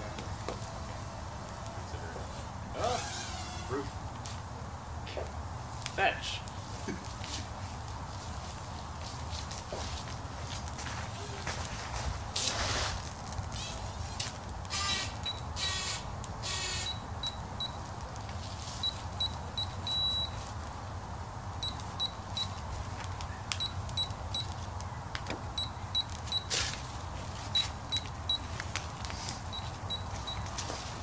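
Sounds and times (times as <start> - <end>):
wood fire crackling and popping: 0.0 - 31.0
short high beeps: 18.8 - 20.4, 21.6 - 22.6.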